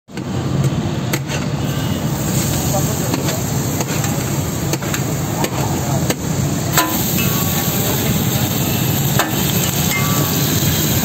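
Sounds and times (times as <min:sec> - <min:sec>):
metal ladle knocking on griddle: 0:06.8 - 0:07.4, 0:09.2 - 0:10.2.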